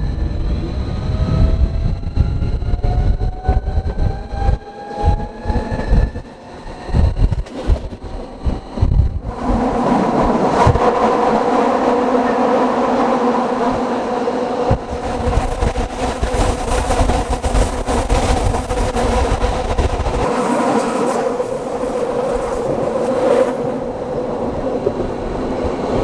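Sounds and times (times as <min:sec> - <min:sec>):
train wheels rumbling: 0:00.0 - 0:26.0
wind: 0:00.0 - 0:26.0.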